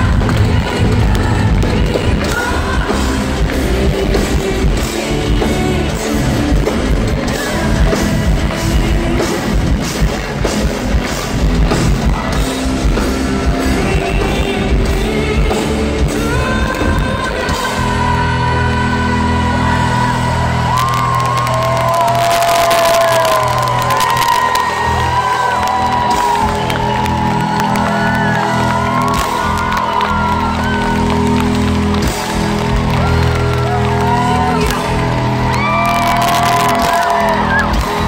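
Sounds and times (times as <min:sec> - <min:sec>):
woman singing lead vocal: 0:00.0 - 0:09.8, 0:13.4 - 0:23.4
live rock band playing: 0:00.0 - 0:38.0.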